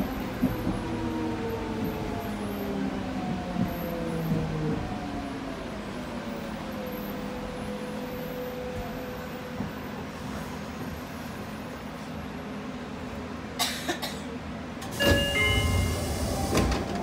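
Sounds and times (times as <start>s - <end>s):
train doors thumping: 14.8s - 17.0s
electronic door chime: 15.0s - 16.6s.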